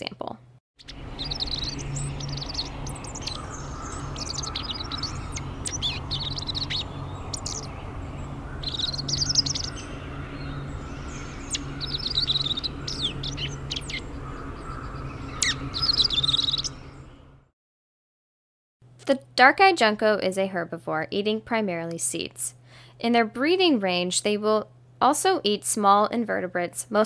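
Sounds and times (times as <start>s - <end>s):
low background hum: 0.0s - 17.5s, 18.9s - 27.0s
bird call notes: 0.8s - 17.2s.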